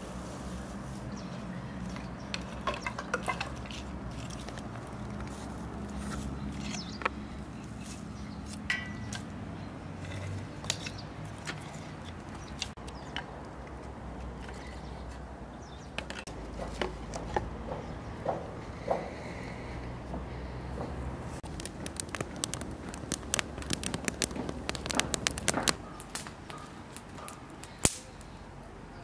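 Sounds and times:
dry grass rustling: 0.0s - 9.3s, 21.3s - 28.1s
wooden sticks knocking: 1.9s - 5.3s, 21.4s - 27.4s.

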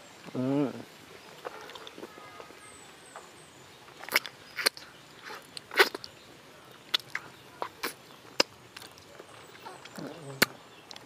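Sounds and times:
lip smacks while eating: 4.0s - 6.2s, 6.8s - 11.0s
wet sucking clicks: 4.0s - 6.2s, 6.8s - 11.0s.

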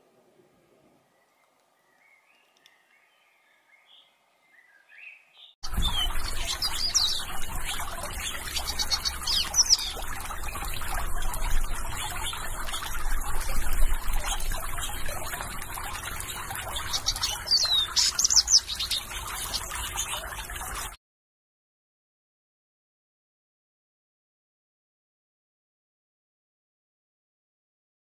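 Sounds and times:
high bird chirps: 1.1s - 20.9s
fountain water trickling and splashing: 5.6s - 21.0s.

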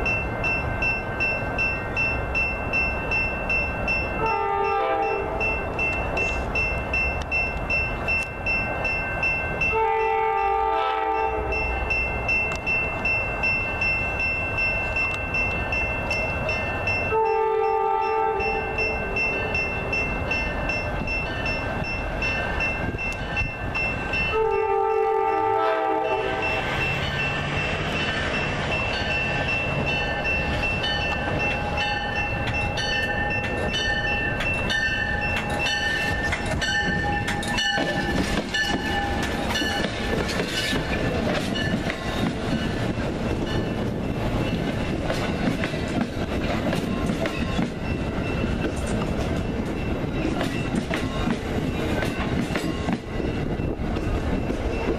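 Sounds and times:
crossing bells ringing: 0.0s - 54.9s
train wheels rumbling and clattering: 0.0s - 54.9s
train horn blowing: 4.2s - 5.6s, 9.7s - 11.7s, 17.1s - 19.6s, 24.3s - 26.8s.

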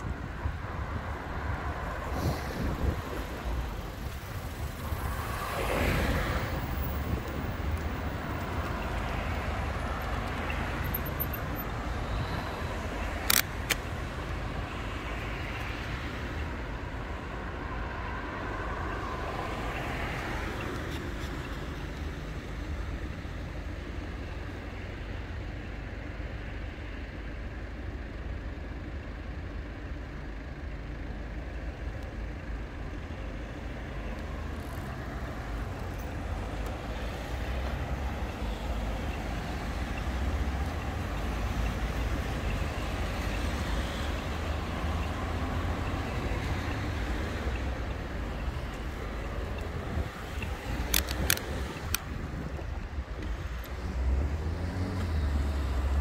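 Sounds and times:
tyres rolling on road: 0.0s - 56.0s
wind buffeting microphone: 1.9s - 5.2s.

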